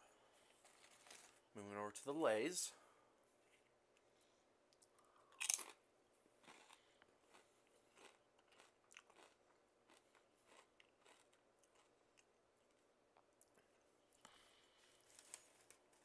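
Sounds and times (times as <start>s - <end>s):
crunching potato chip: 5.3s - 5.8s, 6.4s - 12.3s.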